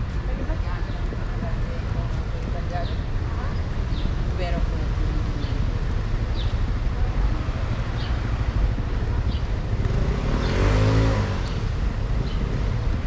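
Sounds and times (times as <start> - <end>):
low rumble of traffic: 0.0 - 13.0
wind: 0.0 - 13.0
vehicle passing by: 7.2 - 13.0.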